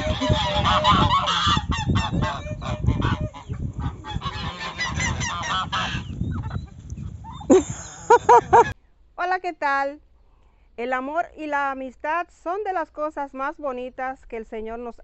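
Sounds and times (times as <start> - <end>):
goose honking: 0.0 - 6.2
farmyard poultry: 0.0 - 8.8.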